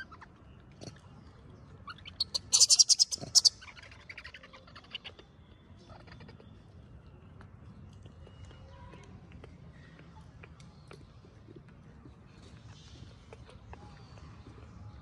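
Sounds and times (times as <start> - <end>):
baby monkey squeaking: 1.8 - 5.2.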